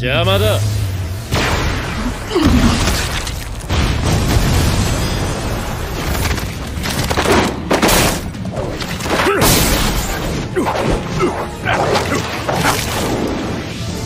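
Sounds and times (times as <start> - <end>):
rumbling debris: 0.7 - 10.6
heavy crashes and impacts: 1.3 - 10.5
music: 5.8 - 14.0.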